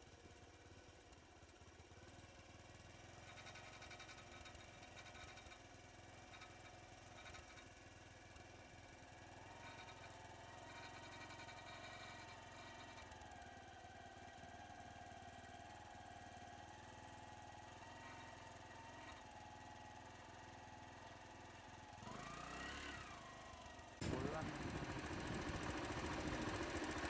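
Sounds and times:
vehicle engine idling: 0:23.4 - 0:27.0.

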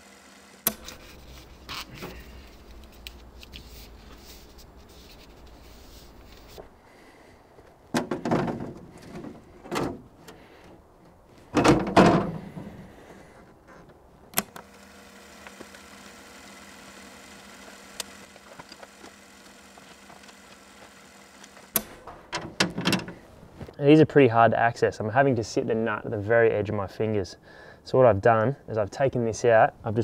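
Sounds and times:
faint steady hum: 0:00.0 - 0:23.8
dull thumps and knocks: 0:11.5 - 0:12.8.

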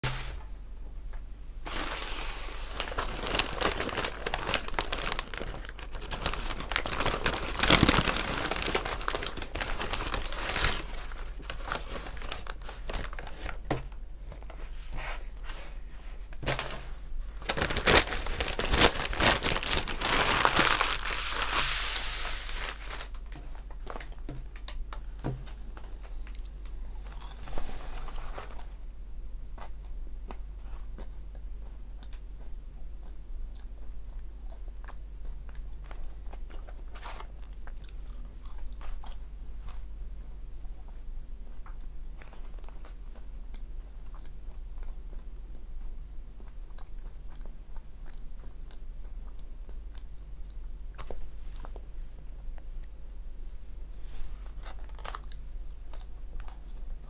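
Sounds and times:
paper bag rustling and crinkling: 0:01.6 - 0:26.2, 0:27.0 - 0:28.8, 0:53.9 - 0:56.2.

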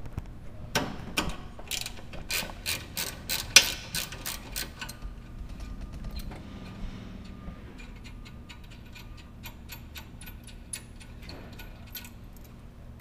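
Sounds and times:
hand ratchet clicking: 0:01.7 - 0:05.0, 0:07.8 - 0:12.2.

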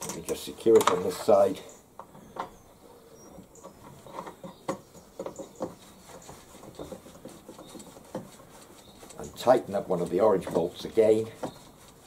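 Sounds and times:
faint rubbing: 0:02.2 - 0:12.0.

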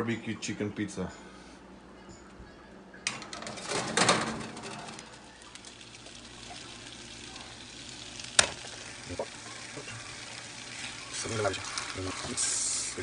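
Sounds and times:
metal pan scraping on oven rack: 0:03.1 - 0:05.2.

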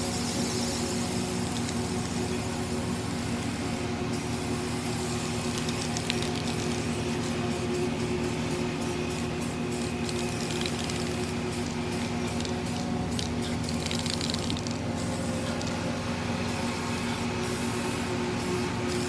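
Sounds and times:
spray paint can hissing: 0:00.0 - 0:19.0
steady low hum: 0:00.0 - 0:19.0.

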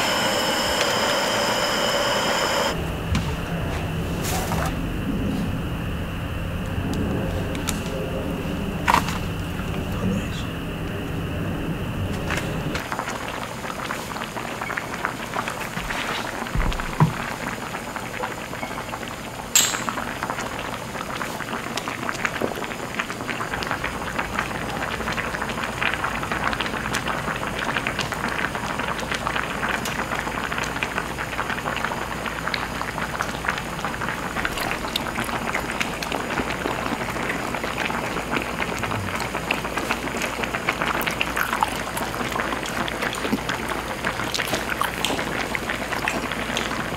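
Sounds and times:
liquid boiling hard: 0:00.0 - 0:03.0, 0:03.6 - 0:46.9
sharp clink: 0:19.6 - 0:20.1.

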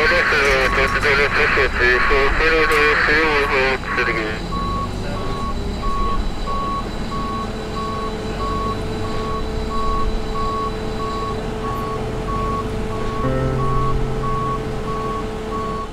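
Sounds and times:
low engine rumble: 0:00.0 - 0:15.9
reversing alarm beeping: 0:00.0 - 0:15.9
deep hum: 0:10.8 - 0:15.9.

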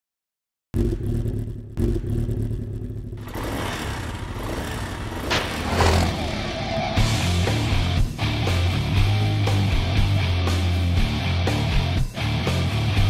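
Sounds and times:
motorcycle engine revving: 0:00.8 - 0:10.7.

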